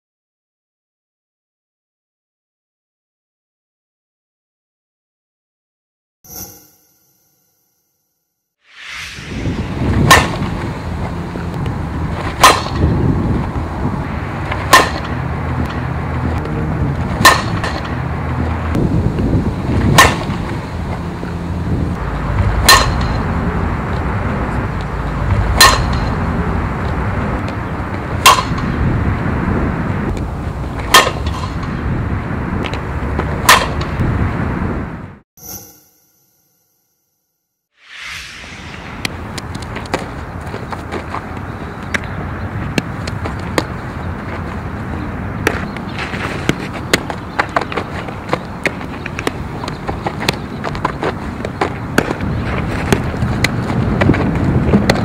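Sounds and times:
bat hitting balls: 0:12.2 - 0:13.0, 0:14.5 - 0:16.0, 0:17.2 - 0:18.5, 0:19.9 - 0:21.4, 0:22.6 - 0:23.4, 0:25.6 - 0:26.3, 0:28.2 - 0:28.8, 0:30.7 - 0:31.8, 0:33.4 - 0:34.0.

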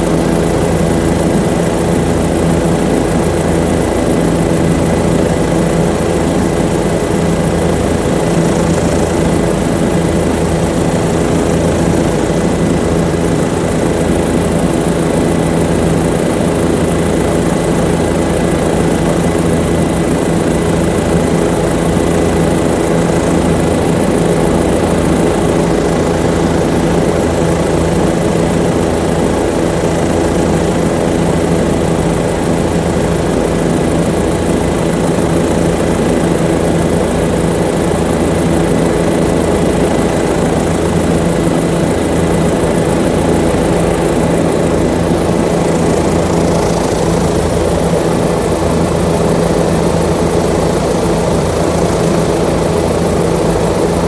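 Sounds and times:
aircraft engine drone: 0:00.0 - 0:54.0.

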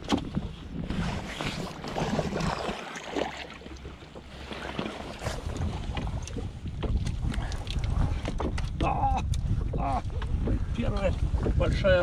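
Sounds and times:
water slapping boat hull: 0:00.0 - 0:12.0
wind buffeting microphone: 0:04.9 - 0:12.0.

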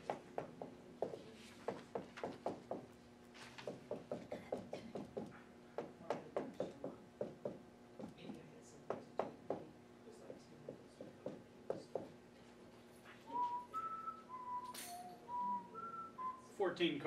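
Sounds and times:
marker tapping on whiteboard: 0:00.0 - 0:02.8, 0:03.6 - 0:09.7, 0:10.7 - 0:12.2.

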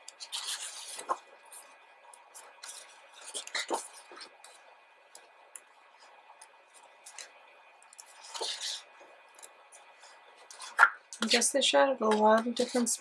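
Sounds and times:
faint paper rustles: 0:00.2 - 0:04.7, 0:05.9 - 0:11.4.

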